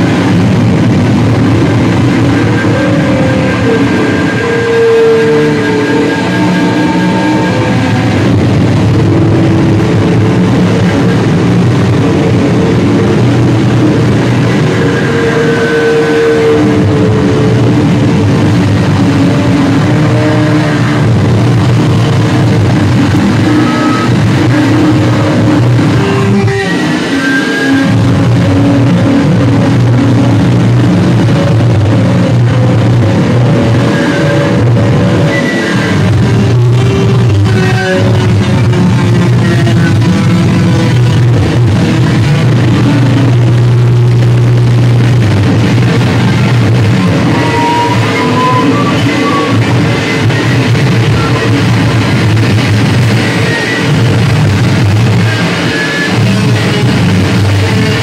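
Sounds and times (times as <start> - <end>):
bass guitar low note: 0.0 - 58.0
distorted guitar: 0.0 - 58.0
live rock band playing: 2.0 - 31.0.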